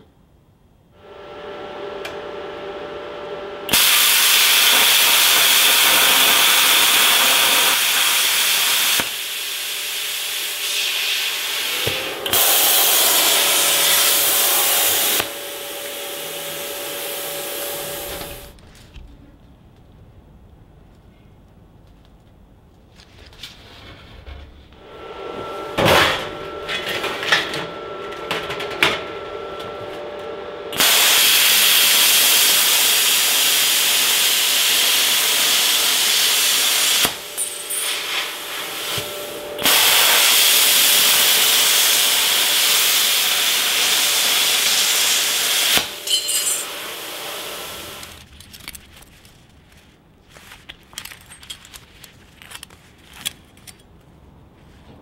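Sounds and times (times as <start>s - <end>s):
torch starting clicks: 3.7s - 9.3s
plasma cutter hissing: 3.7s - 18.5s, 30.8s - 48.2s.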